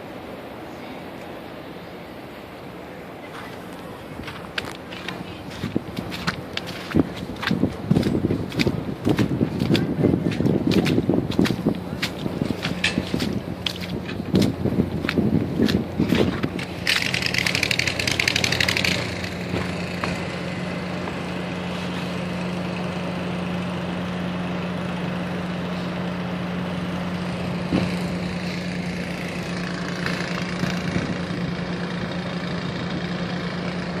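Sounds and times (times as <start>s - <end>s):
motor humming: 3.5s - 34.0s
rapid rattling: 4.6s - 20.4s.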